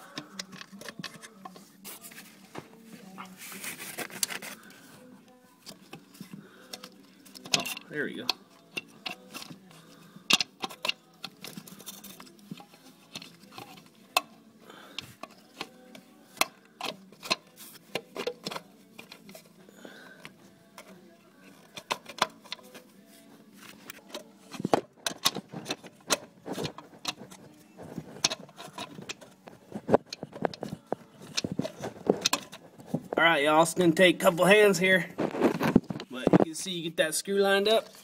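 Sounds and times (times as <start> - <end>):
hands clicking and tapping parts: 0.0 - 2.6, 5.6 - 22.8, 23.6 - 33.2.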